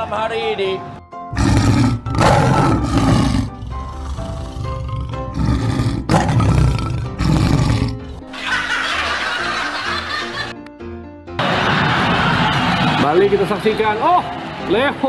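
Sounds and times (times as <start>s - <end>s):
background music: 0.0s - 15.0s
lion roar: 1.3s - 8.2s.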